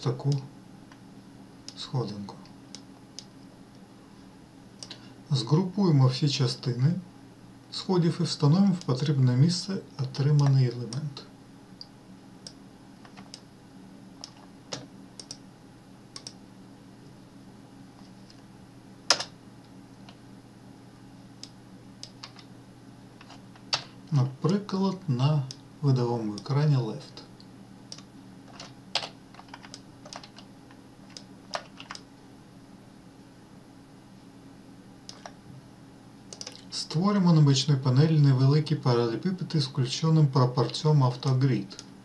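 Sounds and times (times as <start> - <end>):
faint steady hum: 0.0 - 42.0
computer mouse clicks: 11.8 - 13.5, 14.2 - 15.4, 16.1 - 16.4, 27.9 - 30.5, 31.1 - 32.1, 35.1 - 35.4, 36.3 - 36.7
keystrokes: 16.2 - 16.4, 27.9 - 30.5, 36.3 - 36.6.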